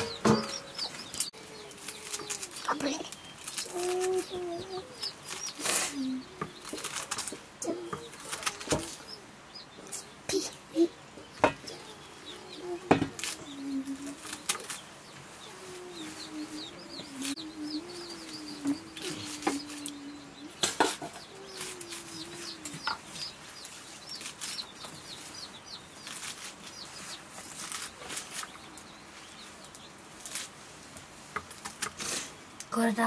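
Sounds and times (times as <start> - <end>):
small birds chirping: 0.0 - 33.0
knife slicing leafy greens: 12.9 - 14.8, 26.0 - 28.5.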